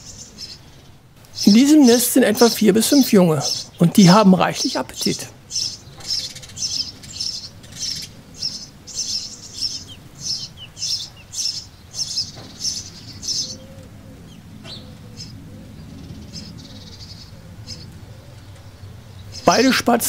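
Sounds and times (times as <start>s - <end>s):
sparrows chirping: 0.0s - 20.0s.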